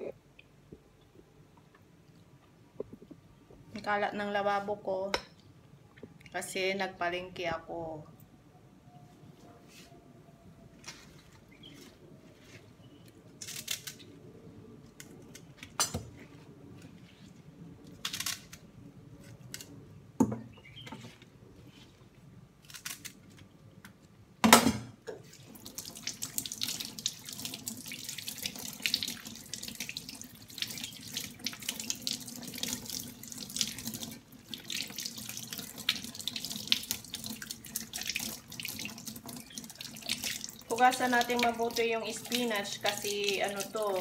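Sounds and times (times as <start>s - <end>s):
kitchen tap running: 25.4s - 44.0s.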